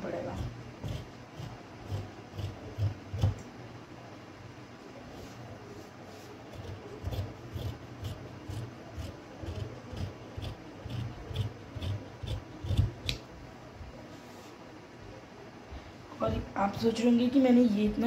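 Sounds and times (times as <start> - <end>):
shears cutting fabric: 0.1 - 3.4, 6.5 - 13.2.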